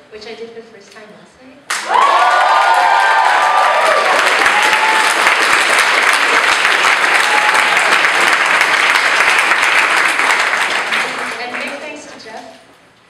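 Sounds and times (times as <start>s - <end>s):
audience applauding: 1.7s - 12.1s
cheers and whoops: 1.8s - 5.5s, 7.0s - 8.2s.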